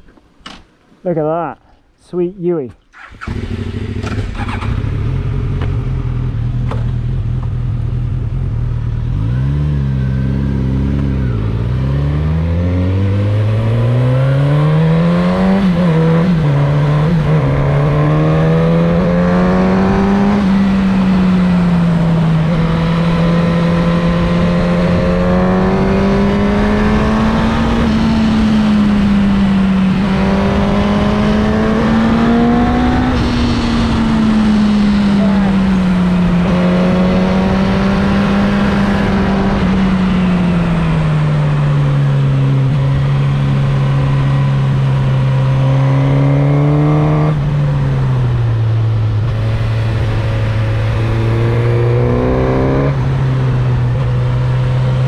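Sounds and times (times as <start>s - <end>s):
motorcycle engine accelerating: 2.9s - 55.0s.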